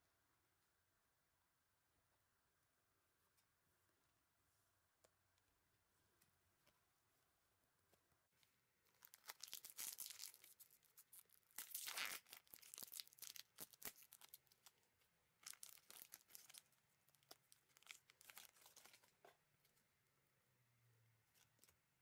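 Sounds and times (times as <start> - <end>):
plastic wrapper crinkling: 8.9 - 14.8, 15.4 - 19.2.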